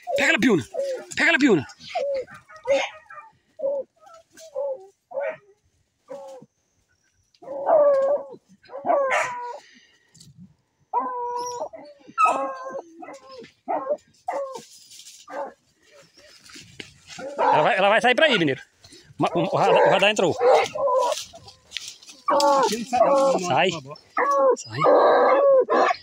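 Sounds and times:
dog barking: 1.0s - 3.4s, 5.1s - 5.5s, 8.7s - 9.6s, 15.3s - 15.6s, 19.6s - 21.2s, 24.2s - 26.0s
dog howling: 7.4s - 9.6s, 10.9s - 14.7s, 17.2s - 17.9s, 19.3s - 21.4s, 22.2s - 26.0s.

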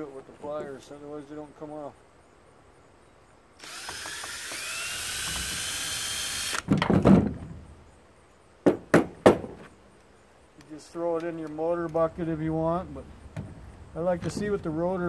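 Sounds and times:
cordless drill whining: 3.6s - 6.7s.

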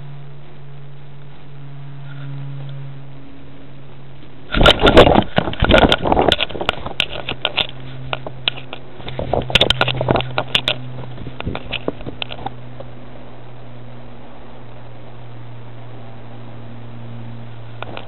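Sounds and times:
steady low hum: 0.0s - 18.0s
scrapes and sharp clicks: 4.5s - 12.9s.

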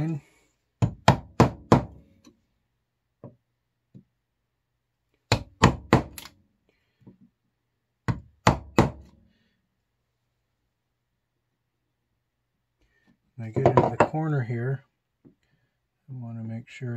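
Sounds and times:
mallet striking wood chisel: 0.8s - 2.0s, 8.1s - 9.1s.

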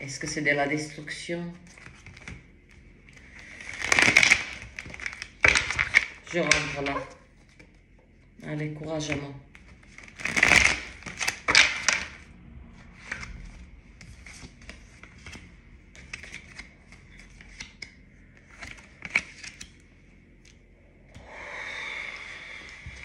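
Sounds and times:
cards shuffling snaps and clicks: 13.0s - 19.8s.

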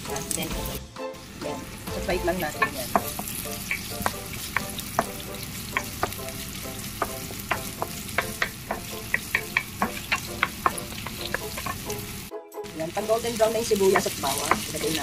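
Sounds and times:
onion and garlic sizzling in oil: 0.0s - 15.0s
wooden spatula scraping a pan: 7.2s - 12.1s.

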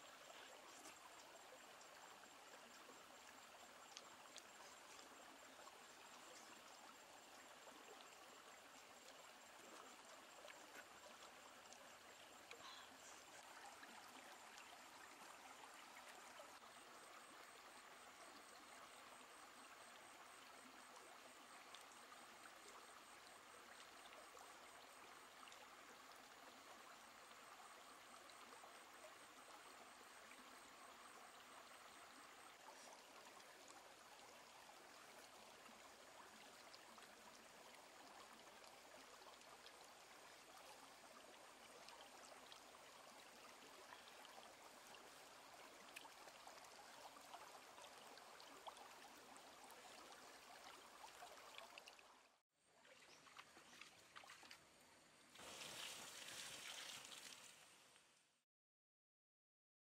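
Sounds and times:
faint rushing hiss: 54.8s - 58.0s.

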